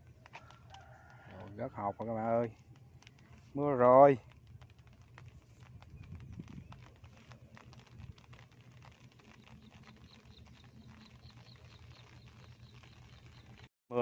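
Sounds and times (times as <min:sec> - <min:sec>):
light rain on pond water: 0:00.0 - 0:14.0.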